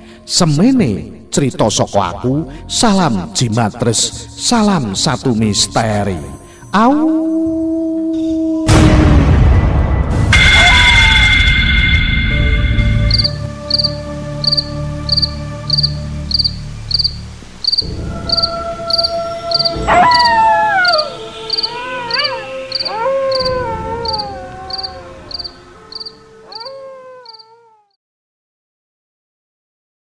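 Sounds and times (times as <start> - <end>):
low drone: 8.1 - 26.6
cricket chirping: 11.4 - 27.5
long howls falling in pitch: 17.9 - 28.0.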